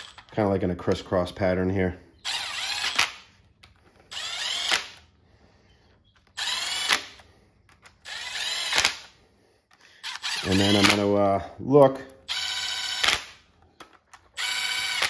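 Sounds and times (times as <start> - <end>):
impact gun bursts: 10.0 - 11.2, 12.4 - 13.5.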